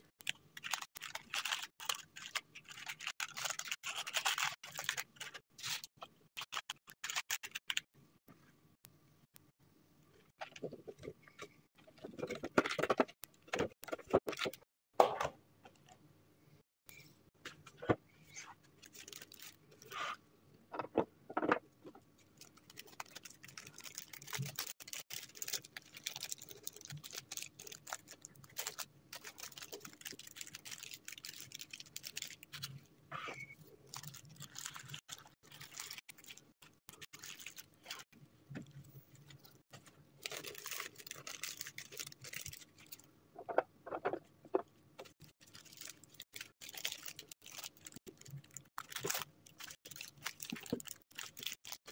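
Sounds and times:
cellophane bag crinkling: 0.2s - 7.9s, 18.8s - 19.9s, 22.3s - 32.8s, 33.8s - 38.1s, 40.2s - 43.1s, 45.2s - 51.9s.

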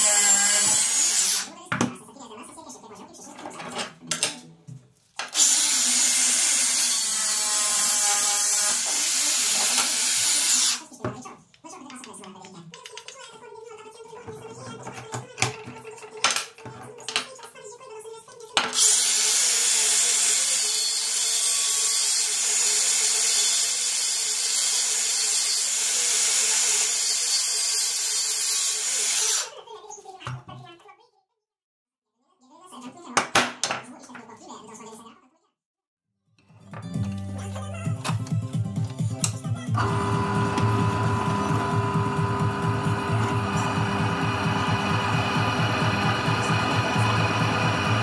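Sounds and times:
angle grinder grinding metal: 0.0s - 1.5s, 5.3s - 10.8s, 18.8s - 29.5s, 39.8s - 48.0s.

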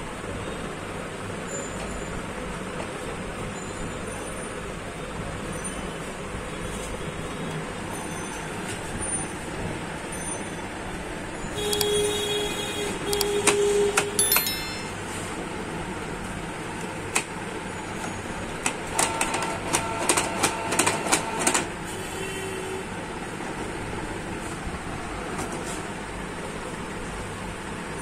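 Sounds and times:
traffic-like noise: 0.0s - 28.0s.

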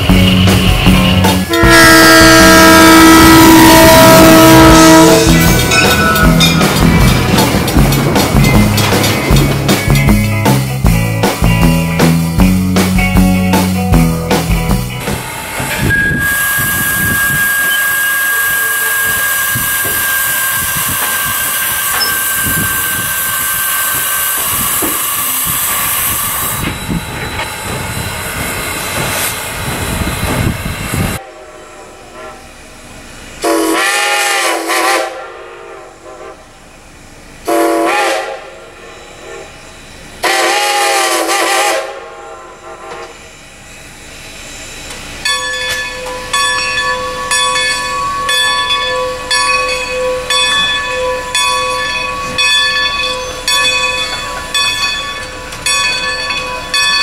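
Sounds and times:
steam locomotive whistle blasts: 1.4s - 6.2s, 15.8s - 26.8s, 31.1s - 32.6s, 33.4s - 36.5s, 37.4s - 39.5s, 40.2s - 43.3s
steam hissing: 15.1s - 31.2s.

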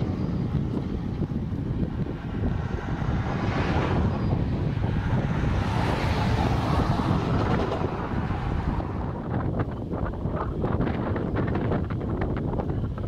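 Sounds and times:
freight train rolling on rails: 0.0s - 13.0s
wind buffeting microphone: 0.0s - 13.0s.

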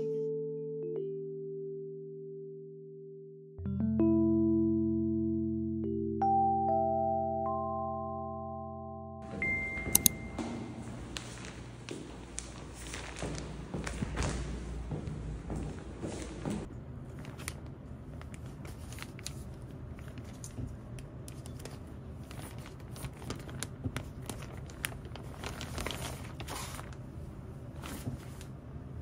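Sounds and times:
plastic packaging crinkling: 11.1s - 14.6s, 17.0s - 27.1s.

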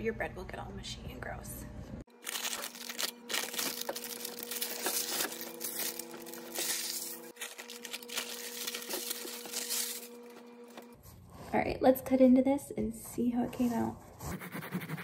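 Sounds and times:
parchment paper crinkling: 2.1s - 11.0s.

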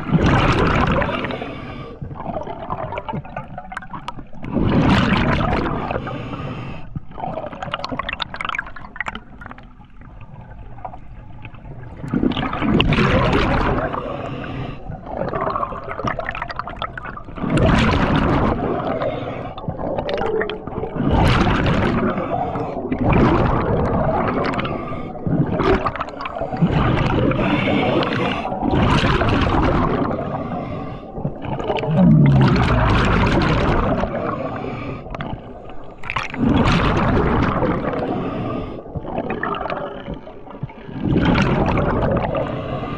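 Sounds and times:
exhaled bubbles rushing: 0.0s - 6.1s, 7.1s - 42.8s
scuba regulator breathing: 1.0s - 2.1s, 5.8s - 7.0s, 13.8s - 15.1s, 18.8s - 19.7s, 22.0s - 22.9s, 24.5s - 25.4s, 26.3s - 28.7s, 30.1s - 32.7s, 34.0s - 35.9s, 37.9s - 39.1s, 42.3s - 42.9s.

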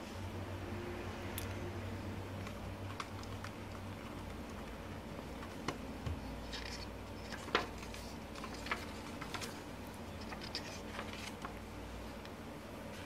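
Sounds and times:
low steady hum: 0.0s - 13.0s
paper pages rustling: 6.4s - 11.8s.

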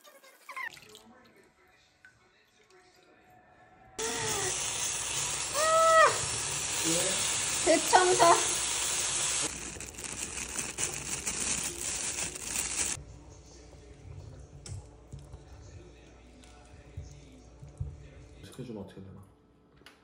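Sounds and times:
person exclaiming: 4.0s - 4.6s, 5.5s - 6.3s
liquid hissing on hot glass: 4.0s - 13.0s.

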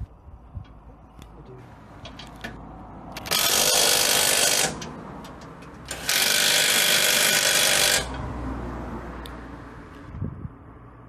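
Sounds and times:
cordless drill spinning: 3.2s - 4.8s, 5.9s - 8.2s.

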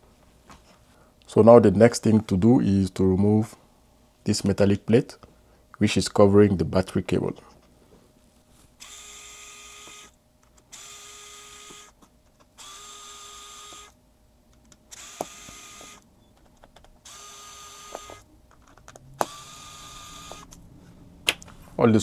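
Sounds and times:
electric screwdriver whirring: 8.8s - 12.0s, 12.6s - 14.0s, 14.9s - 16.0s, 17.0s - 18.2s, 19.2s - 20.6s.

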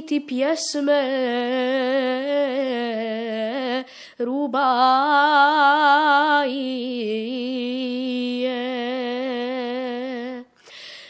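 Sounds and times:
boy singing with vibrato: 0.0s - 10.6s
breath: 3.8s - 4.2s, 10.6s - 11.0s.

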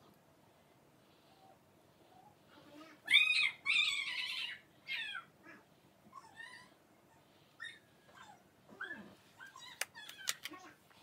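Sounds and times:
pet animal high-pitched cries: 3.0s - 6.8s.

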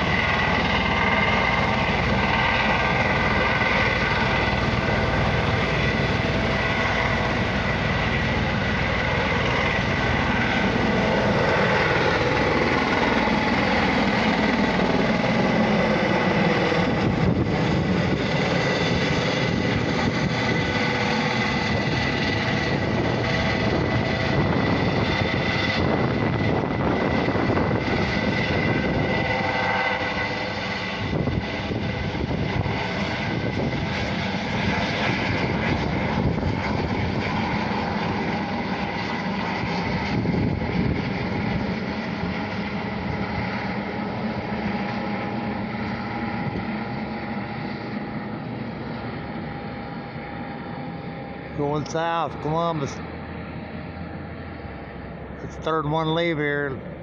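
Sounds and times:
helicopter turbine and rotor: 0.0s - 57.0s.

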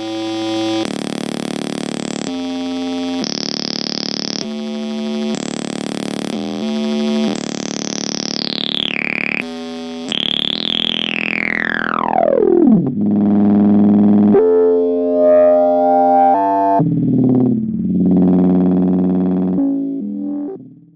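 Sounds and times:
low synthesizer drone: 8.7s - 20.9s
choppy synthesizer tones: 10.1s - 20.9s
descending synthesizer pitch sweep: 10.3s - 20.8s.

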